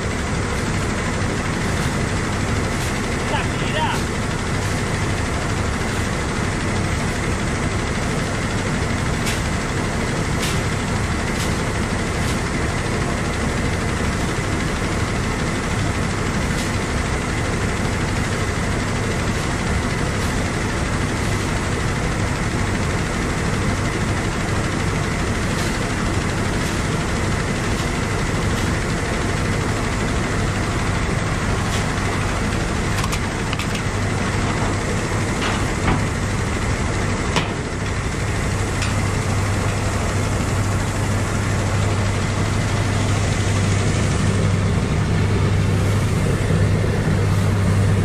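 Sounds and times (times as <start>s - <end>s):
harvester engine running: 0.0s - 48.0s.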